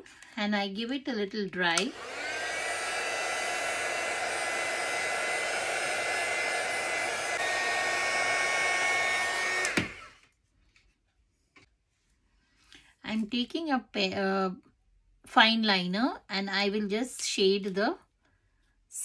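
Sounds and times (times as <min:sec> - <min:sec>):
heat gun blowing with fan whine: 0:01.8 - 0:10.2.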